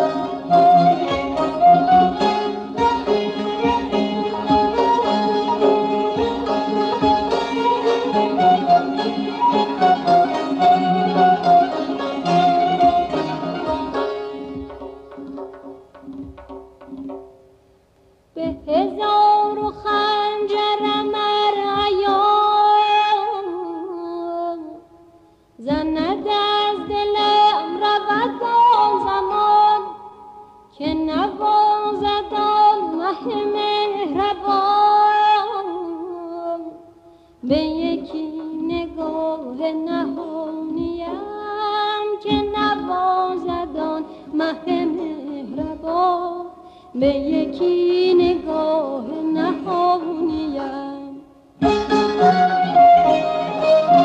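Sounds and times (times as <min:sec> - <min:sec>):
classical music ornamented melody: 0:00.0 - 0:15.7, 0:51.6 - 0:54.0.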